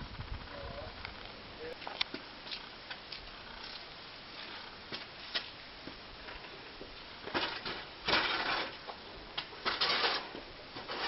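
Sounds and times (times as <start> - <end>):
metal ladder scraping on concrete: 7.3 - 8.9, 9.6 - 11.0.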